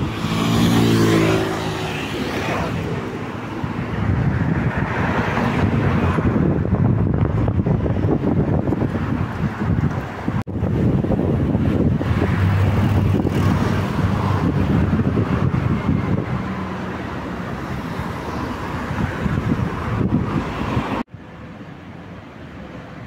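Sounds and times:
wind noise on microphone: 0.0s - 21.1s.

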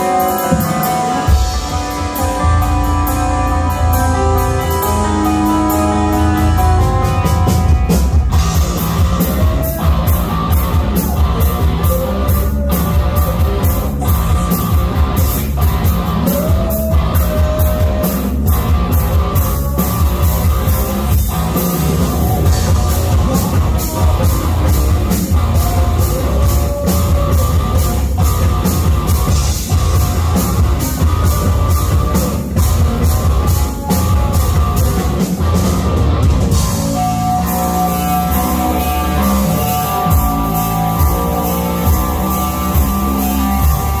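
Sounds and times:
amplified electric guitar: 0.0s - 44.0s
person singing: 3.4s - 35.4s
drum beat: 7.0s - 44.0s.

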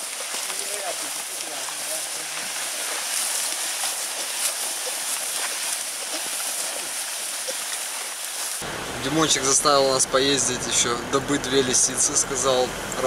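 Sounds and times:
dry stalks rustling and swishing: 0.0s - 8.6s
footsteps crunching through stalks: 0.0s - 8.6s.

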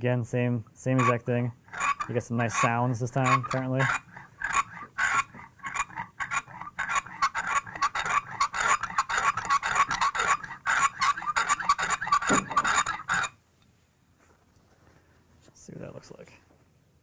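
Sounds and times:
chisel scraping on sharpening stone: 1.0s - 13.3s.

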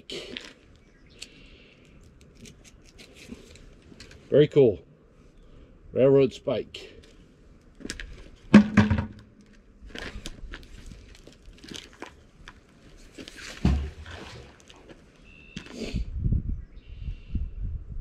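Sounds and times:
magnet splashing into water: 13.4s - 15.0s.

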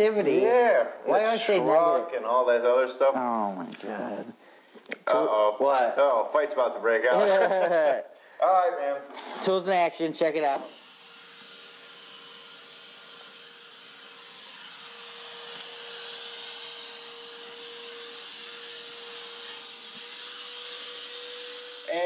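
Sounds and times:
hand vacuum running: 10.6s - 22.0s.

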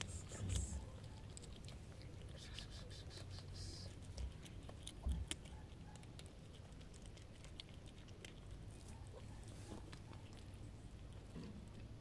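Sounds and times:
cats crunching dry kibble: 0.0s - 12.0s.

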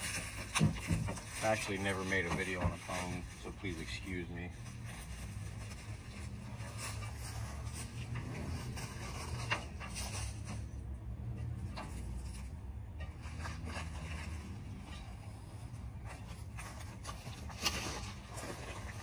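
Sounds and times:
small knocks: 0.0s - 3.3s.

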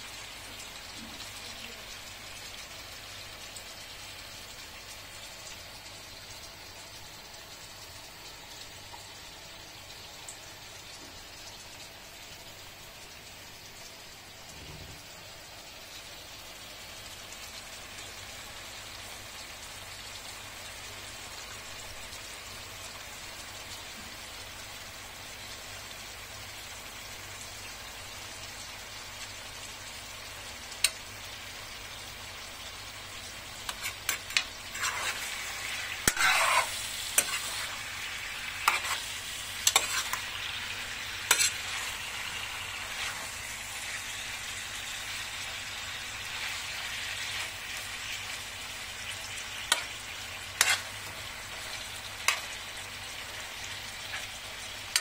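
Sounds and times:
chicken sizzling in a pan: 0.0s - 55.0s
utensil scraping a pan: 33.7s - 37.8s, 38.4s - 40.3s, 41.2s - 42.0s, 50.6s - 51.0s.

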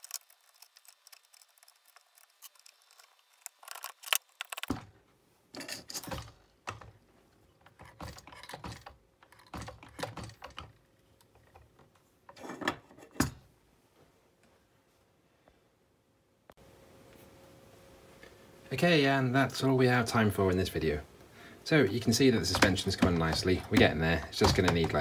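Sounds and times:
parts clicking and clattering: 0.0s - 13.4s, 21.9s - 25.0s.

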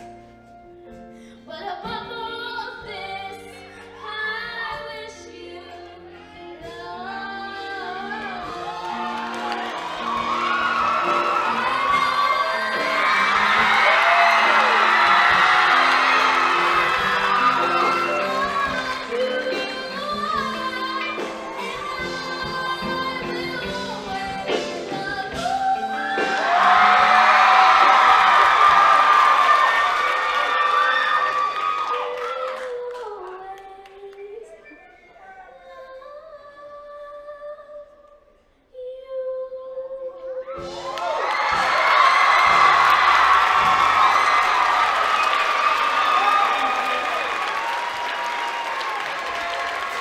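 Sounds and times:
woman singing: 1.3s - 9.6s, 11.3s - 14.0s, 16.7s - 27.3s, 31.9s - 40.9s
audience cheering: 8.2s - 22.5s, 25.3s - 33.0s, 40.6s - 50.0s.

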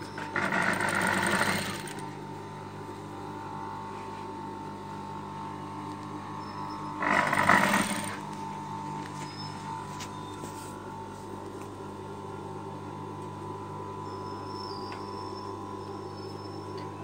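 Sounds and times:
sewing machine stitching: 0.0s - 2.0s, 7.0s - 8.2s
steady hum: 0.0s - 17.0s.

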